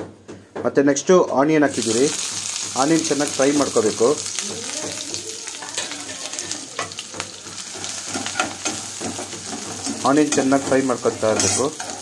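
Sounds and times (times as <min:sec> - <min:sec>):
onions sizzling in hot oil: 0:01.6 - 0:12.0
metal spoon scraping a pan: 0:05.5 - 0:12.0.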